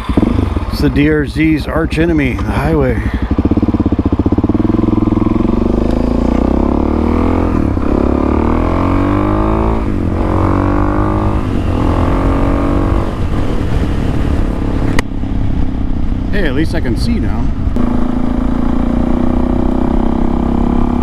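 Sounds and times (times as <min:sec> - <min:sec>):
motorcycle engine accelerating: 0:00.0 - 0:21.0.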